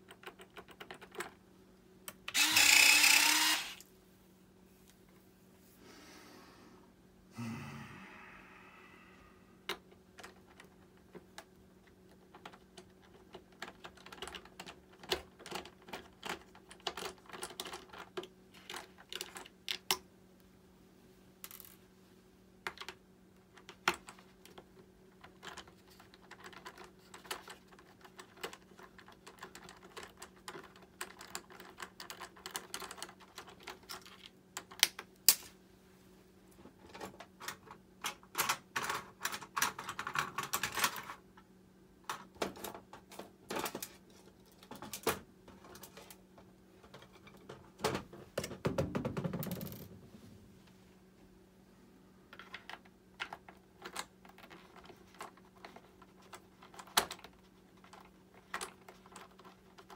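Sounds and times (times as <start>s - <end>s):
small parts clicking and tapping: 0.0s - 1.4s, 9.6s - 20.1s, 22.6s - 35.5s, 36.8s - 41.2s, 52.3s - 59.9s
steady low hum: 1.4s - 11.9s.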